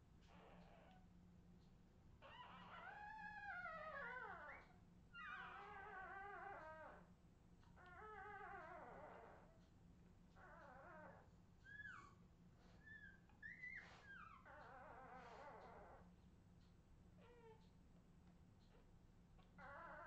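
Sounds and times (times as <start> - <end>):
puppies crying: 2.2 - 7.0, 7.8 - 9.5, 10.4 - 16.0, 19.6 - 20.0.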